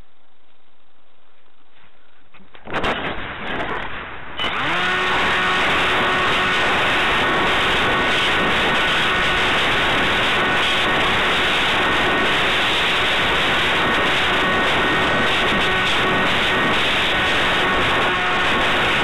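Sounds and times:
wind rushing over microphone: 2.6s - 19.0s
faint motor whine: 4.4s - 19.0s.

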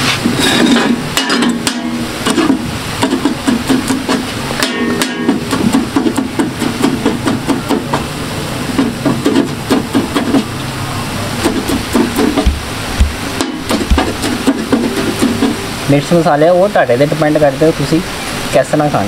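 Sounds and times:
cleaver chopping on iron pan: 0.5s - 8.0s, 8.8s - 10.5s, 11.4s - 15.6s.

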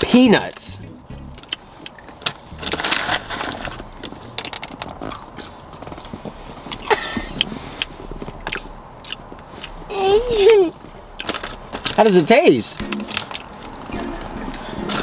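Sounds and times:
chewing dry cereal crunches: 1.4s - 6.9s, 11.2s - 12.2s
plastic snack bag crinkling: 1.9s - 5.8s.

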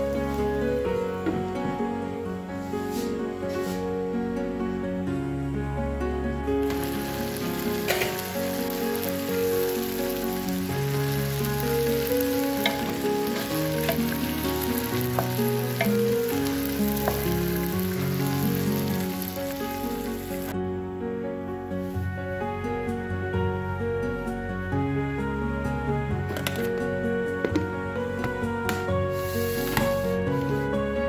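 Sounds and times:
background music: 0.0s - 31.0s
vegetables sizzling in a pan: 6.6s - 20.5s, 29.2s - 29.9s.

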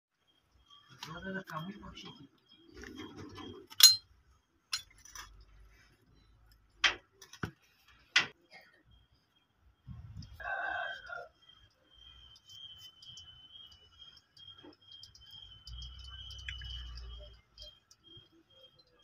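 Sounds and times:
sharp metallic clinks and knocks: 3.7s - 4.1s.

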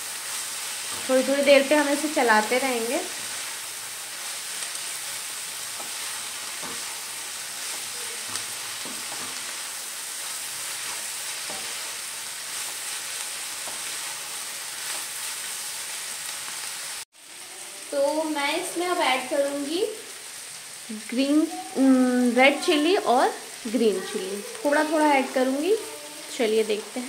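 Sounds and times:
cabbage sizzling in a pan: 0.0s - 27.0s
wooden spatula scraping a pan: 4.2s - 15.6s.

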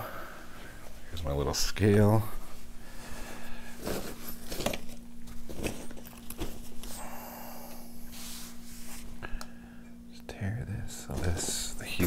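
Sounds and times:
steady low hum: 0.0s - 12.0s
objects knocking and rustling: 3.8s - 6.9s.

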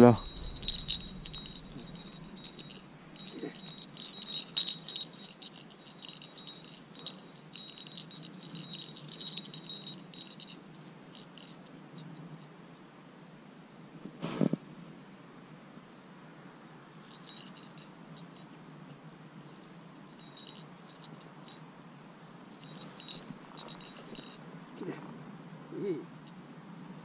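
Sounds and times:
dog collar bell jingling: 0.0s - 12.2s, 17.0s - 18.6s, 20.1s - 21.6s, 22.4s - 24.9s.

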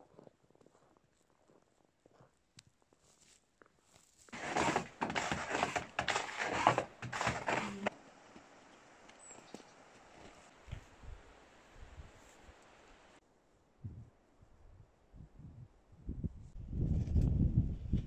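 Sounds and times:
footsteps crunching in snow: 0.1s - 7.9s.

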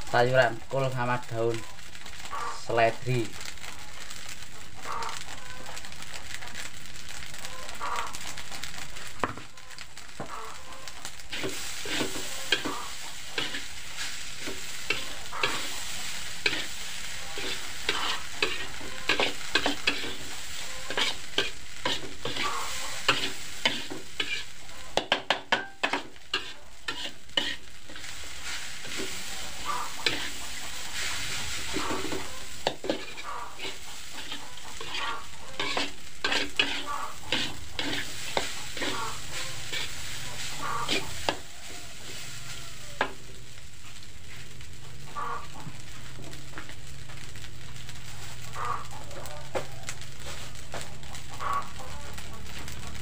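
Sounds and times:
rice sizzling in a wok: 0.0s - 53.0s
metal spatula scraping a wok: 10.2s - 43.2s.

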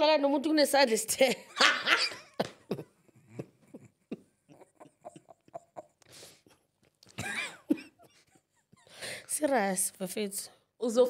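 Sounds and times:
woman laughing breathlessly: 1.7s - 6.6s, 7.2s - 9.3s.

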